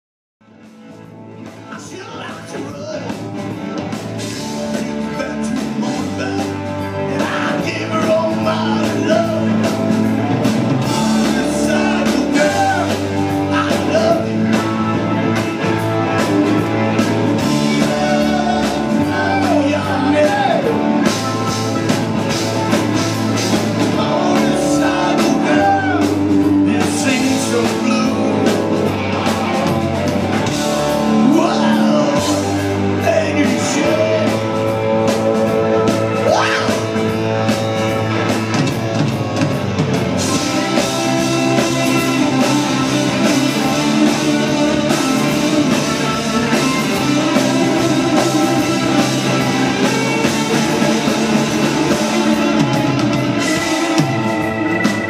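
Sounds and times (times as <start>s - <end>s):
rock band playing: 0.4s - 55.0s
man singing into microphone: 4.7s - 9.7s, 10.9s - 14.6s, 17.5s - 20.8s, 23.9s - 28.6s, 31.1s - 34.7s.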